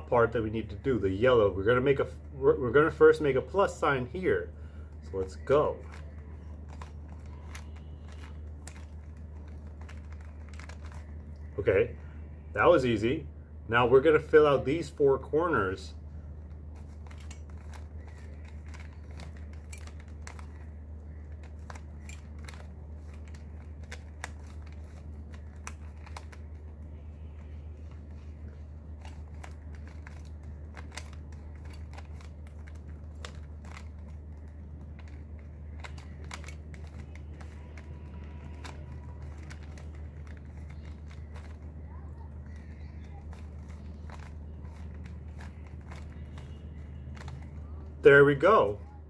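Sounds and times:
steady low hum: 0.0 - 49.0
puzzle cube clicking: 5.3 - 11.5, 16.4 - 49.0.

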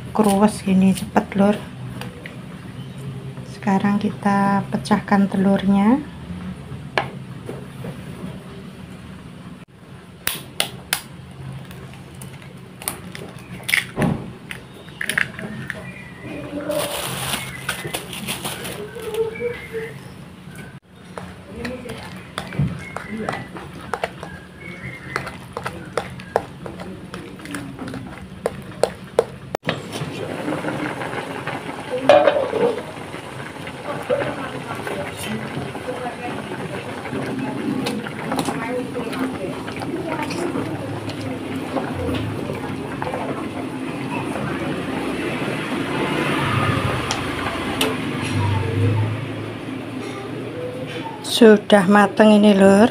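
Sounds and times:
utensil beating eggs in bowl: 21.0 - 29.6.

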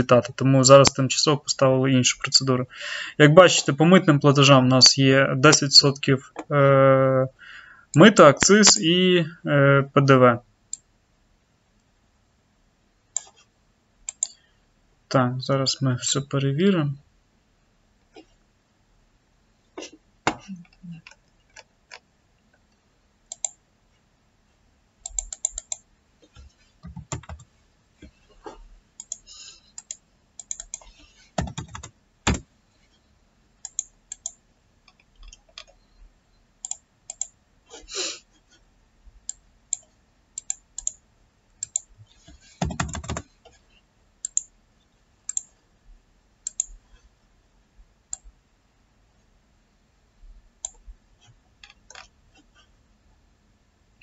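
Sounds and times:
keyboard typing: 14.1 - 14.4, 23.3 - 23.6, 25.0 - 25.9, 26.8 - 27.5, 29.0 - 32.5, 33.6 - 35.8, 36.6 - 37.4, 39.3 - 41.0, 41.6 - 41.9, 42.6 - 43.3, 46.4 - 46.8, 50.6 - 52.4
mouse clicks: 14.1 - 14.4, 23.3 - 23.6, 29.0 - 31.6, 33.6 - 35.8, 36.6 - 37.4, 39.3 - 41.0, 44.2 - 44.5, 45.3 - 45.5, 46.4 - 46.8.

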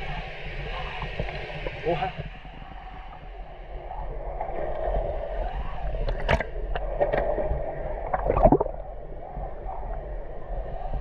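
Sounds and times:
water gurgling and sloshing: 3.9 - 10.5.

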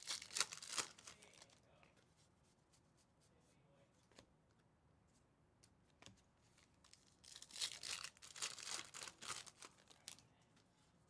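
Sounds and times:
foil wrapper tearing: 0.0 - 1.6, 6.9 - 10.2.

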